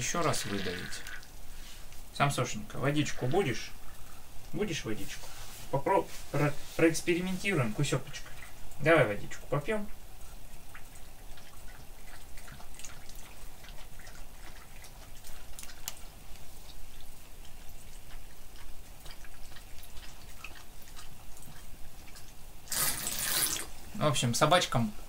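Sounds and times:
dog lapping water: 7.4s - 23.7s.

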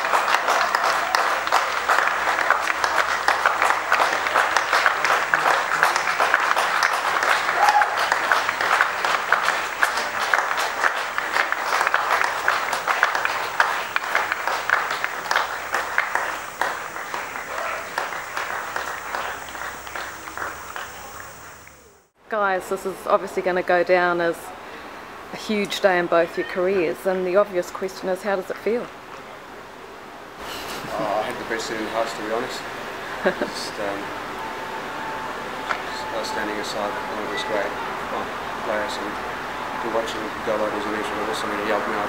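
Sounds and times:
crowd applauding: 0.0s - 22.1s, 38.7s - 42.0s.

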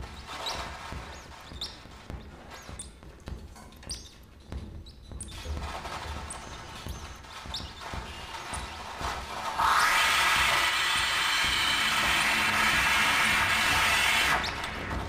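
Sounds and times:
dense hiss: 9.4s - 14.9s.

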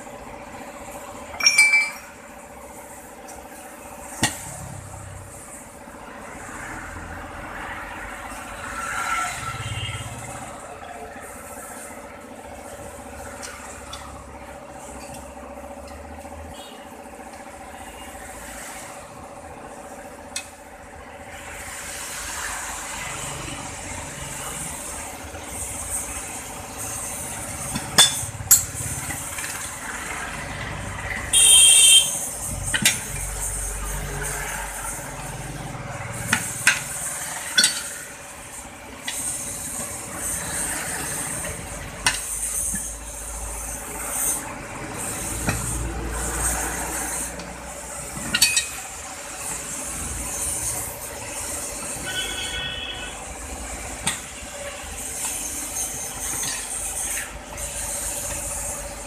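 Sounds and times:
ringing metal clank: 1.4s - 2.2s.

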